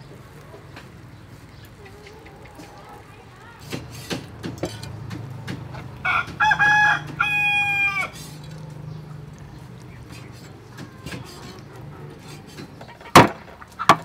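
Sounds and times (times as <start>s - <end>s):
rooster crowing: 5.8s - 8.4s.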